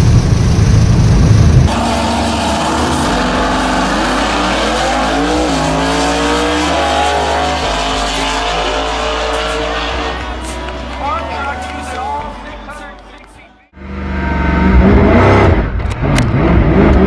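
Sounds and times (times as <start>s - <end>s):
race cars accelerating hard: 1.7s - 17.0s.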